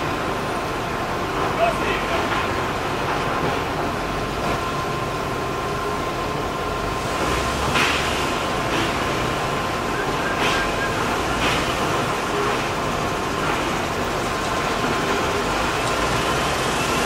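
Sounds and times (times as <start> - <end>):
steam locomotive running rumble: 0.0 - 17.0
steam hissing: 6.8 - 17.0.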